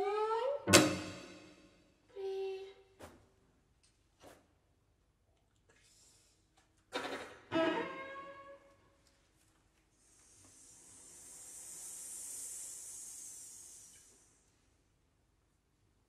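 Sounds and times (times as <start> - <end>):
airy hiss from strings: 10.0 - 14.4.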